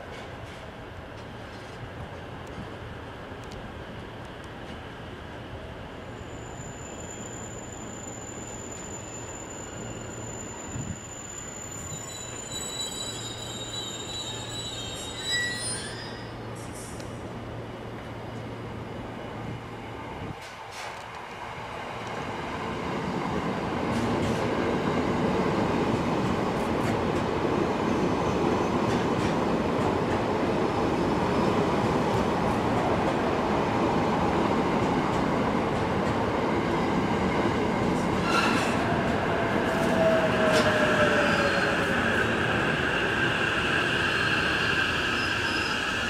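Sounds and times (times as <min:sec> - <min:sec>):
train rolling noise: 0:00.0 - 0:46.0
high squealing wheels or brakes: 0:06.1 - 0:17.0, 0:38.1 - 0:46.0.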